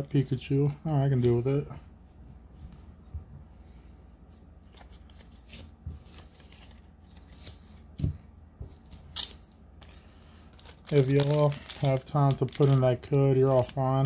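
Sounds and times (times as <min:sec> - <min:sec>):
trading cards rustling: 0:04.6 - 0:08.0, 0:08.8 - 0:14.0.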